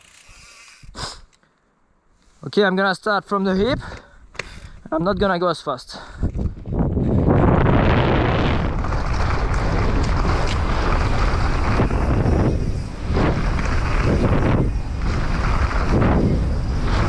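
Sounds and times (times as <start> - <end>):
bike tyres rolling over dirt: 6.2 - 17.0
wind buffeting microphone: 6.2 - 17.0.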